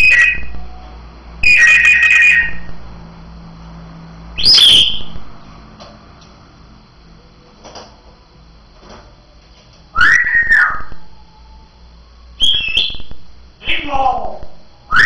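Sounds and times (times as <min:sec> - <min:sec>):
parrot whistling: 0:00.0 - 0:00.5, 0:01.4 - 0:02.7, 0:04.4 - 0:05.2, 0:10.0 - 0:11.2, 0:12.4 - 0:13.1.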